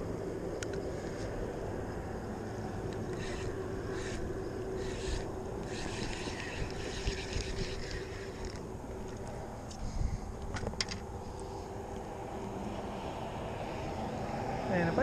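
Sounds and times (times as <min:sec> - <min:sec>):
steady low rumble with hum: 0:00.0 - 0:15.0
fishing reel cranking: 0:02.9 - 0:08.7.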